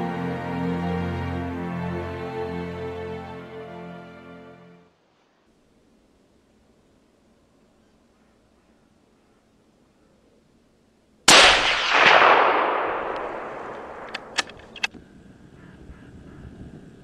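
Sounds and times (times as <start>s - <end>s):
rifle shot with echo: 11.3s - 14.9s
sharp clicks: 11.3s - 15.0s.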